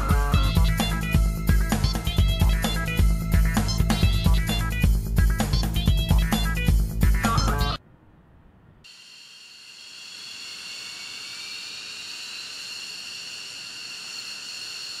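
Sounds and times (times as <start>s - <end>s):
fighter jet engines whining: 8.9s - 15.0s.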